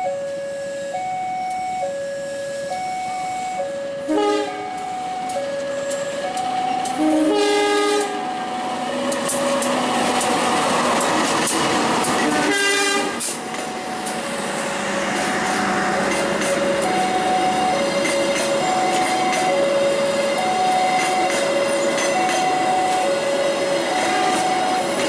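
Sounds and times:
level crossing two-tone alarm: 0.0s - 9.7s, 15.9s - 25.0s
train passing rush: 0.0s - 25.0s
locomotive horn: 3.4s - 4.8s, 6.8s - 8.3s, 12.2s - 13.4s, 20.4s - 25.0s
wheels clicking over rail joints: 4.8s - 25.0s.

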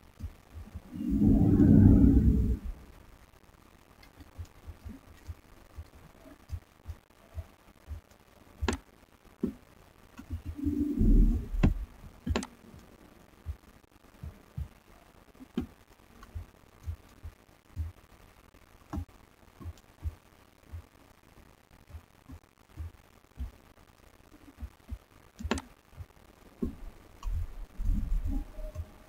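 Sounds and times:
soft low thumps: 0.1s - 3.1s, 10.2s - 14.8s, 15.4s - 18.2s, 21.8s - 29.0s
rumbling bump: 0.9s - 2.9s.

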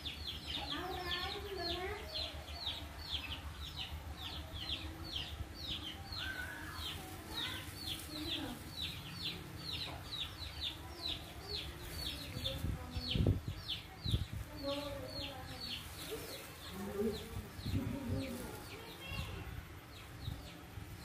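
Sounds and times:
bird chirping high: 0.0s - 21.0s
faint lower bird calls: 5.6s - 11.2s.

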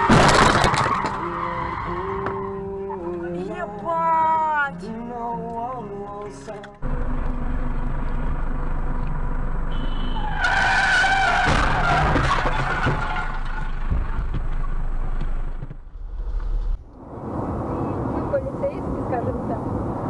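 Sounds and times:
crunching car impacts: 0.0s - 1.3s, 10.4s - 16.0s
tyres skidding: 0.0s - 4.8s, 5.4s - 20.0s
road and engine noise: 0.0s - 20.0s.

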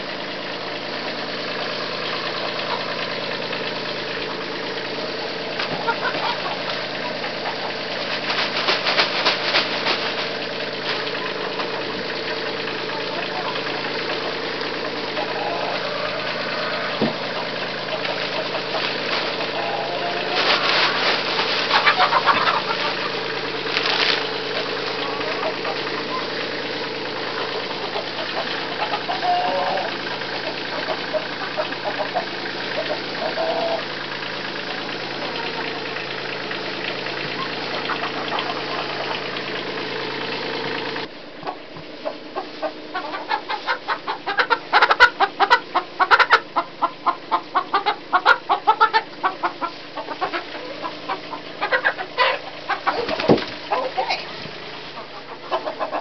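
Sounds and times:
hens clucking: 0.0s - 56.0s
low mechanical hum: 0.0s - 56.0s
wood shavings rustling and scraping: 5.0s - 12.2s, 14.2s - 33.9s, 49.0s - 56.0s.

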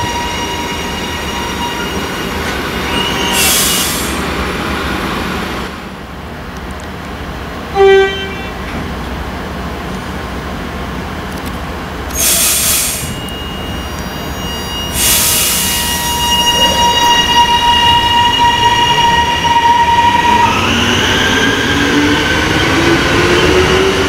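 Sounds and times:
low train rumble: 0.0s - 24.0s
air hissing: 3.3s - 4.4s, 12.1s - 13.3s, 14.9s - 16.8s
train horn toot: 7.7s - 8.7s, 15.6s - 20.6s.

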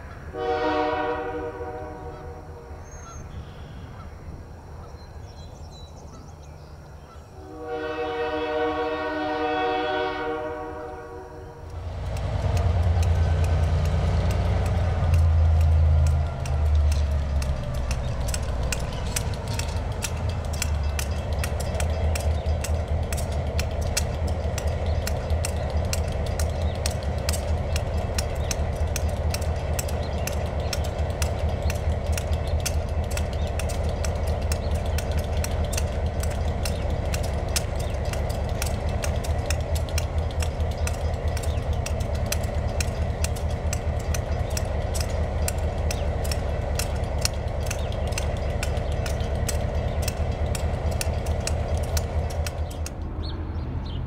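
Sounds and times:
diesel locomotives idling: 0.0s - 54.0s
fast exhaust beat: 11.7s - 53.0s.

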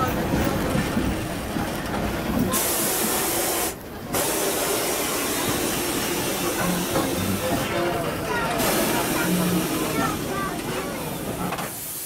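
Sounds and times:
steam locomotive hissing: 2.2s - 12.0s
sharp steam hiss: 2.5s - 7.6s, 8.6s - 10.3s, 11.6s - 12.0s.

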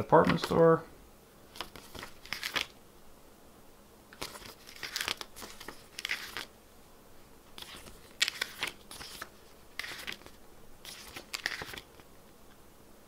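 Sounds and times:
paper pages turning: 0.0s - 0.7s, 1.5s - 2.8s, 4.2s - 6.5s, 7.6s - 12.1s.

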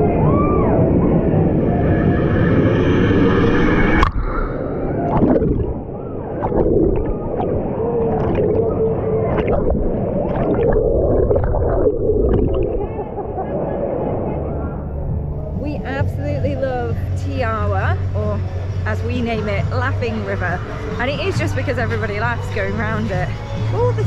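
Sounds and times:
muffled underwater gurgling: 0.9s - 23.2s
water splashes: 3.7s - 14.2s.

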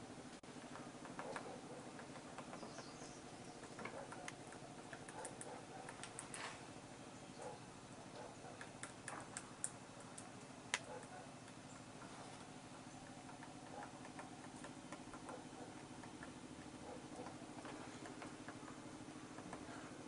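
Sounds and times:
steady low hum: 0.0s - 20.0s
woodpecker tapping on branch: 0.7s - 6.4s, 8.2s - 12.1s, 13.0s - 19.9s.

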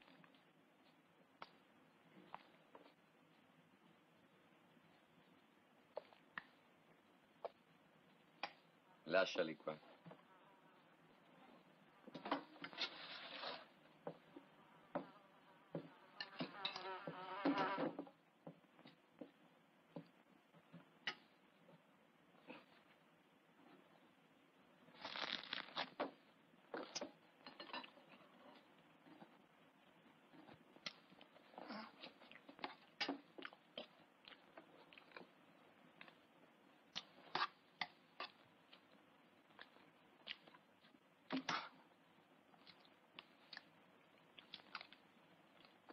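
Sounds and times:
insect-like buzz: 15.9s - 18.0s.

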